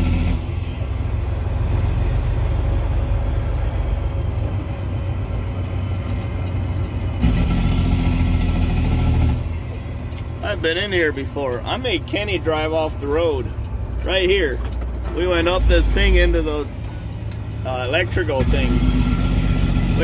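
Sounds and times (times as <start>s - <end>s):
diesel truck engine droning: 0.0s - 20.0s.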